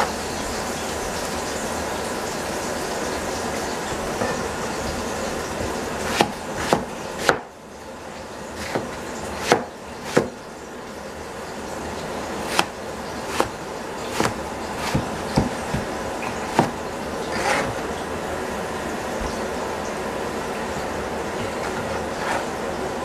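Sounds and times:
cleaver chopping on cutting board: 0:06.0 - 0:07.5, 0:08.6 - 0:10.4, 0:12.4 - 0:17.8.

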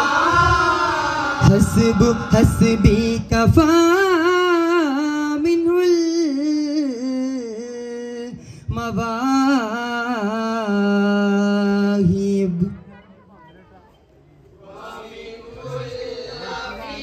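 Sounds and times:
man singing unaccompanied: 0:00.0 - 0:12.9.

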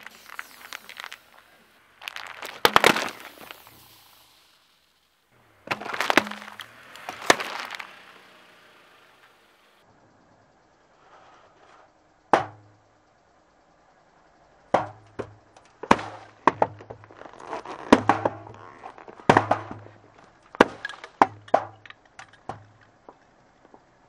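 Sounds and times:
hiss of spraying drink: 0:00.0 - 0:01.8, 0:02.9 - 0:05.0
drink cans bursting under tyre: 0:00.0 - 0:09.7, 0:15.8 - 0:23.3.

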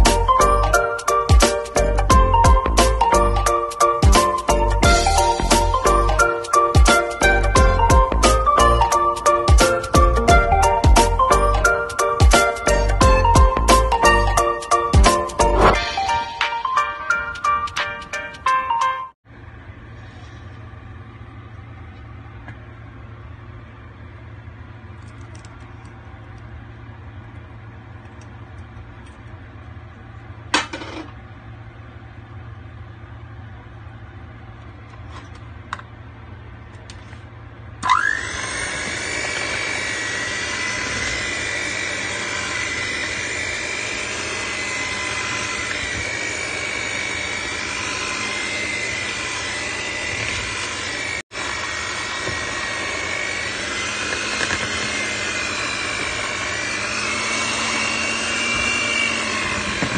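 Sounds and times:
electric hand mixer whine: 0:00.0 - 0:17.3, 0:37.8 - 0:59.9.

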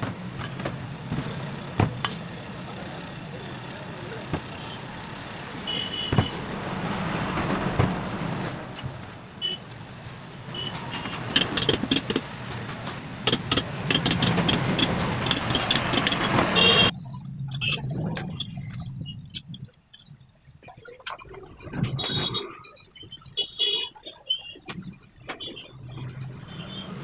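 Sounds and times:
low vehicle rumble: 0:00.0 - 0:20.8
metal parts clicking and clinking: 0:13.2 - 0:16.4.

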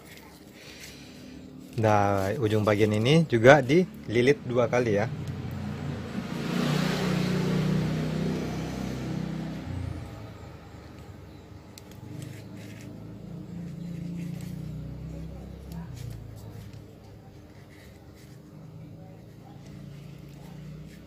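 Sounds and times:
motor vehicle passing: 0:00.2 - 0:21.0
low engine hum: 0:02.3 - 0:21.0.

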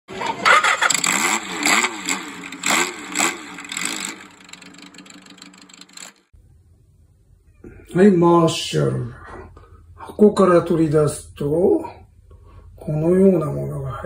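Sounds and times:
motorcycle engine revving: 0:00.1 - 0:06.3.

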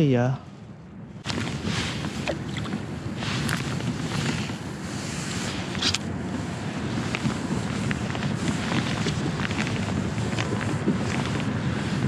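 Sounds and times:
wind buffeting microphone: 0:00.0 - 0:12.0
fishing rod swish: 0:01.3 - 0:04.4.

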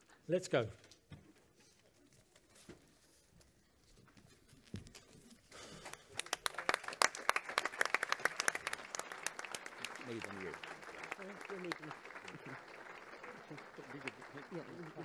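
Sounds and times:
audience applause: 0:05.6 - 0:15.0.

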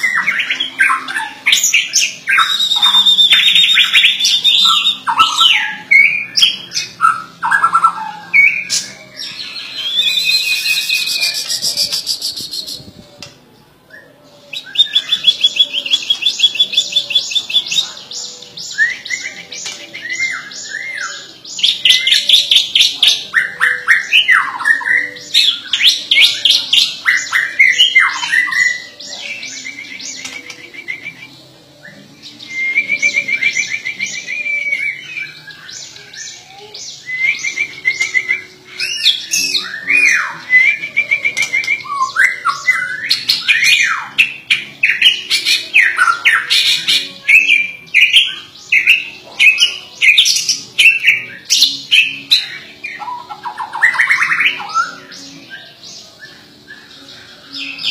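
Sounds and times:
songbird singing whistles and trills: 0:00.0 - 0:13.3, 0:13.9 - 0:57.9.

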